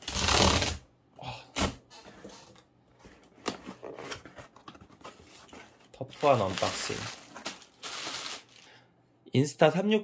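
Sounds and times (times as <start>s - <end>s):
cardboard tear strip ripping: 0.0s - 0.8s.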